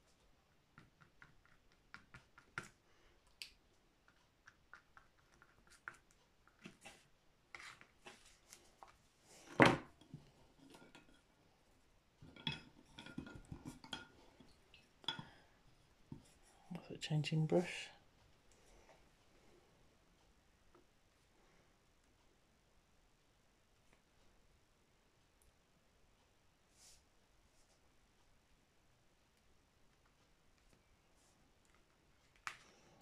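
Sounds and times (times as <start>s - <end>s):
painting tools tapping and clicking: 0.6s - 6.9s.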